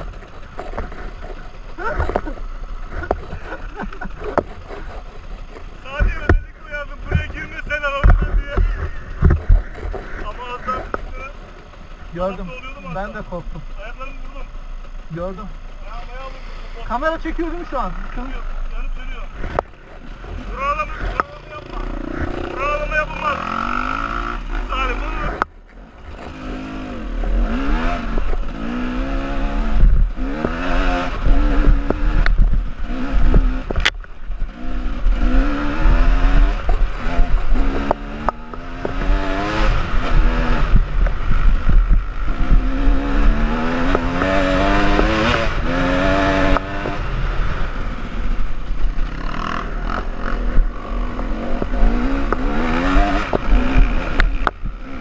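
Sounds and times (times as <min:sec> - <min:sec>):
motorcycle engine revving: 0:00.0 - 0:55.0
motorcycle rattling over bumps: 0:00.0 - 0:55.0
wind rumble: 0:26.0 - 0:55.0.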